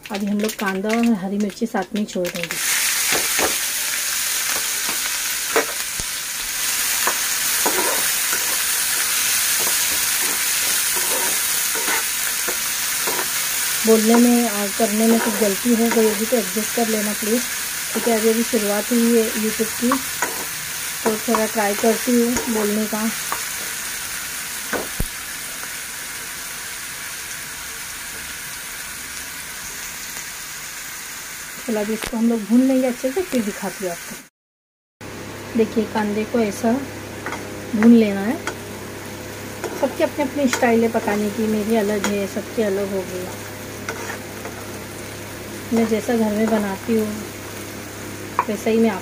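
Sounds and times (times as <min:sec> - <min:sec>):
onions sizzling in oil: 0:00.0 - 0:34.3, 0:35.0 - 0:49.0
spatula scraping and knocking pan: 0:07.0 - 0:14.4, 0:15.0 - 0:16.3, 0:19.9 - 0:23.5, 0:43.8 - 0:44.8.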